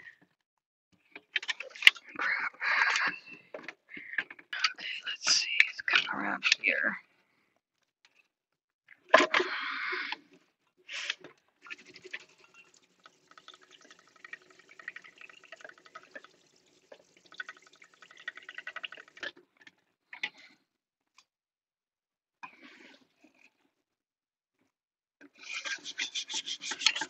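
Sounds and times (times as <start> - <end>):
water spattering on cutting board: 11.6 - 19.3.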